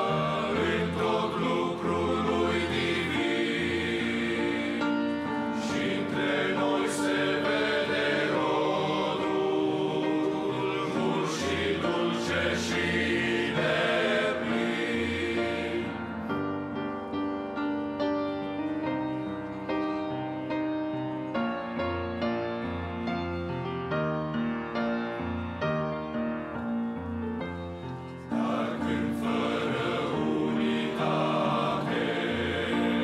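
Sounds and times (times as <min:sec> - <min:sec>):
men's choir singing a hymn: 0:00.0 - 0:16.8, 0:28.1 - 0:33.0
slow gentle piano: 0:00.0 - 0:33.0.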